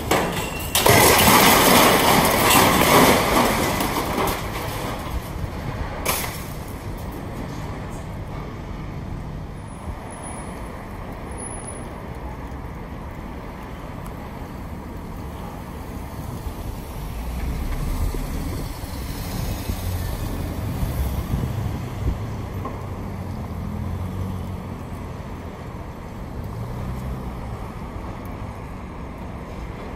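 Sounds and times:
city street traffic: 0.0s - 29.9s.

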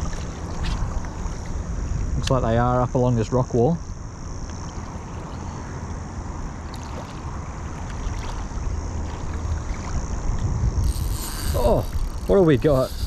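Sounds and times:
wind buffeting microphone: 6.8s - 13.0s.

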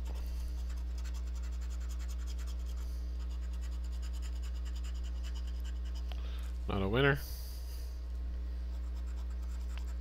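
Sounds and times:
low electrical hum: 0.0s - 10.0s
coin scratching lottery ticket: 0.6s - 6.0s, 8.8s - 10.0s.

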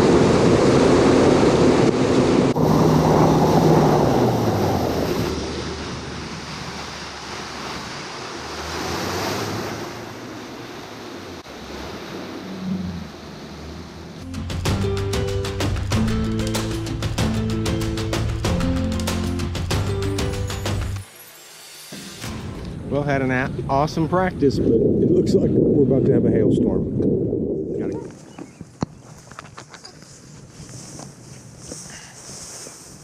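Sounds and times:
outboard motor: 0.0s - 14.2s
water rushing under boat hull: 0.0s - 18.6s
music: 14.2s - 22.9s
wind buffeting microphone: 22.6s - 29.5s.

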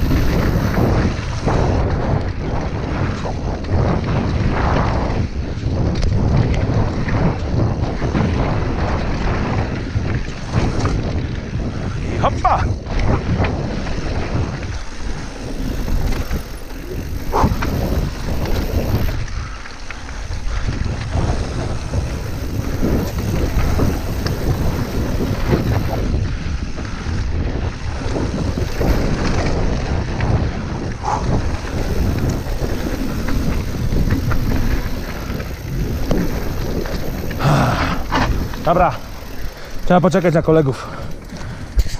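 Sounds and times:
bike tyres rolling on dirt: 0.0s - 41.9s
wind buffeting microphone: 0.0s - 41.9s
bike knocks and rattles: 12.5s - 19.2s, 20.6s - 39.8s.

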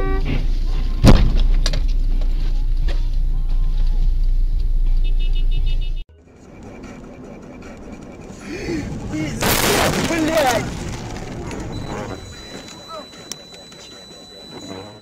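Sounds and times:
car crash bang: 1.0s - 1.6s, 9.4s - 12.2s
car engine and tyres on snow: 10.0s - 12.9s.

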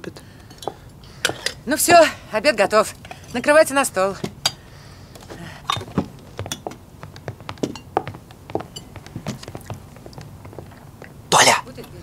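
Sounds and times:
dishes and cutlery clinking: 0.5s - 1.6s.

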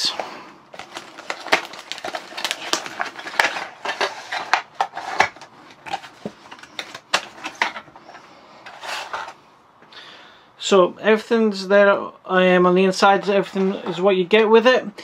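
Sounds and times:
packaging crinkling and scraping: 0.0s - 9.4s.

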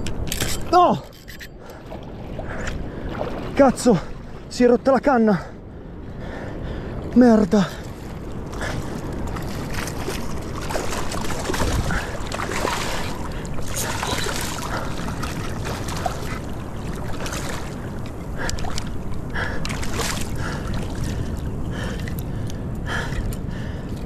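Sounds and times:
sea water splashing: 1.6s - 5.6s, 6.2s - 23.2s
wind on microphone: 7.8s - 24.0s.

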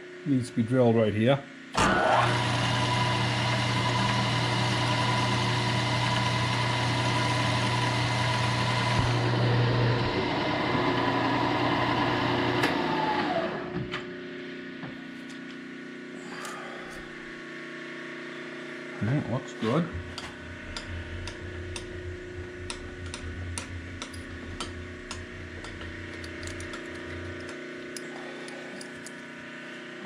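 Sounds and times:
milling machine spindle whirring: 1.8s - 13.8s, 19.6s - 29.5s.

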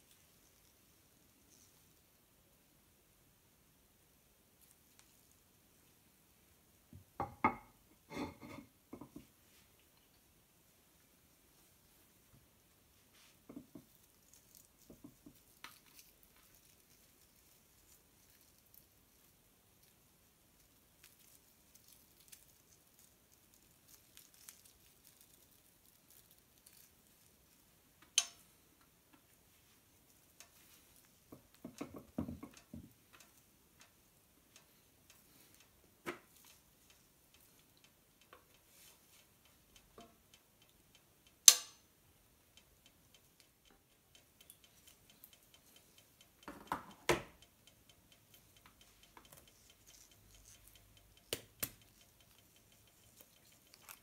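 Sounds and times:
utensils clicking and tapping: 42.6s - 54.0s.

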